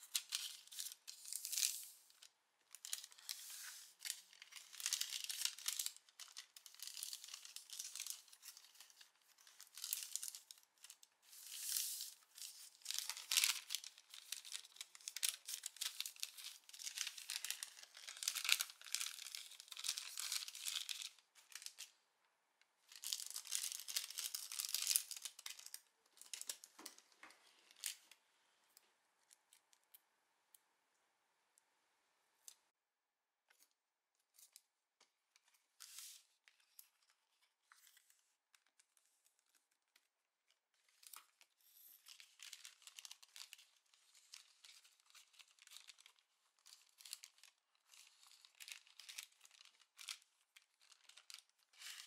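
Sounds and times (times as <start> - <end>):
thin paper rustling and crinkling: 0.0 - 21.9, 22.9 - 28.0, 40.8 - 52.0
faint ticks and handling sounds: 33.5 - 52.0.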